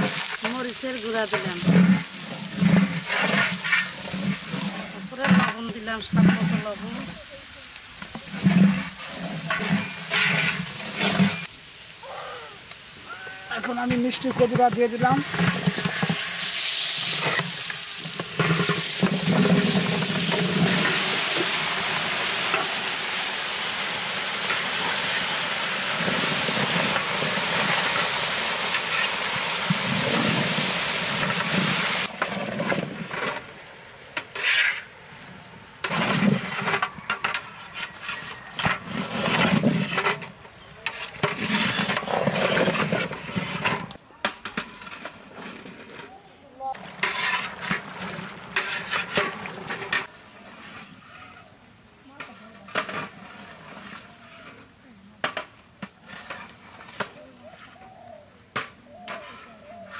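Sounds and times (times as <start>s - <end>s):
scraping and knocking in pan: 0.0s - 6.8s, 8.0s - 11.5s, 13.6s - 21.7s, 46.8s - 50.1s
pumpkin sizzling in oil: 0.0s - 32.2s.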